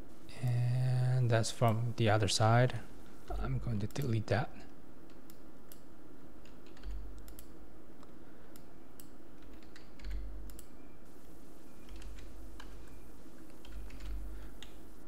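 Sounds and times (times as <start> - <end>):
low room hum: 0.0 - 15.0
keyboard keys clicking: 6.4 - 7.5, 9.0 - 10.7, 11.8 - 12.8, 13.5 - 14.8.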